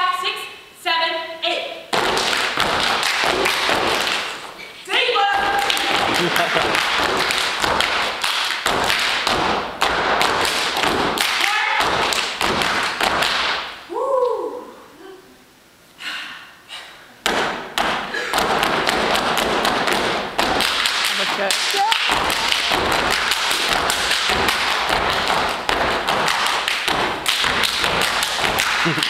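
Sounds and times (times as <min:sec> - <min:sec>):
person shouting: 0:04.9 - 0:06.1, 0:11.4 - 0:11.9, 0:21.7 - 0:22.7
hand claps in unison: 0:05.6 - 0:13.6, 0:17.3 - 0:29.0.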